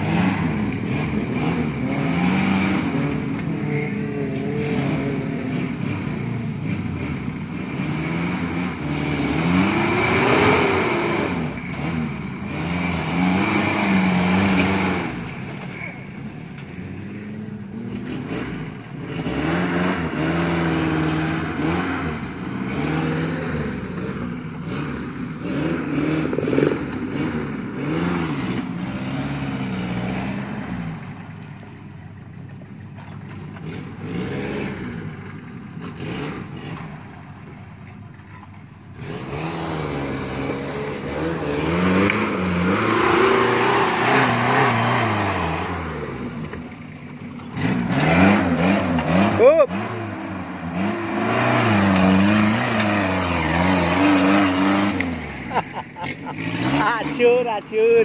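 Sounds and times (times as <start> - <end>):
engine revving under load: 0.0 - 58.0.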